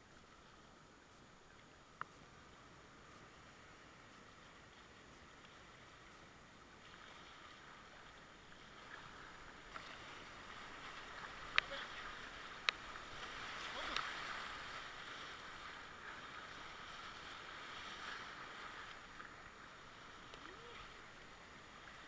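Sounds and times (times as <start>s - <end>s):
paddle strokes splashing: 0.0s - 22.0s
whitewater rushing: 8.8s - 22.0s.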